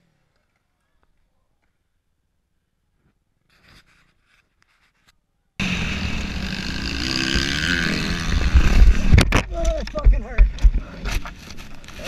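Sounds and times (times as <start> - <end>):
dirt bike engine running hard: 5.6 - 11.0
wind noise on microphone: 7.9 - 11.3.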